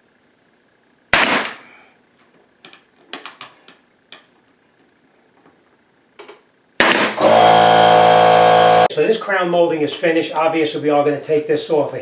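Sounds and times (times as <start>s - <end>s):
nail gun shot: 1.1s - 1.6s, 6.8s - 7.5s.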